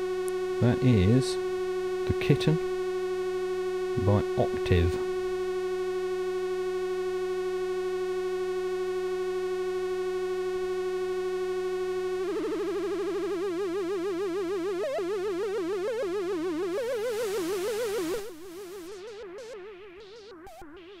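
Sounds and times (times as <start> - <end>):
synthesizer noise hiss: 0.0 - 1.4, 3.9 - 5.5, 10.1 - 21.0
buzzy synthesizer note: 0.0 - 21.0.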